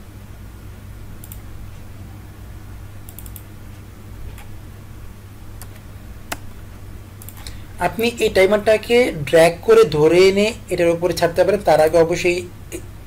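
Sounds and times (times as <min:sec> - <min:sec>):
steady low hum: 0:00.0 - 0:13.0
computer mouse clicks: 0:01.2 - 0:01.5, 0:03.0 - 0:03.5, 0:07.2 - 0:07.6
keyboard keystrokes: 0:03.1 - 0:03.4, 0:07.2 - 0:07.5.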